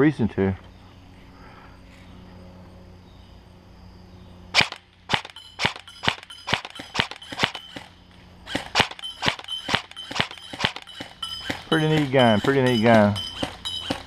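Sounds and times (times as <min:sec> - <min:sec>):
airsoft rifle firing: 0:04.5 - 0:14.0.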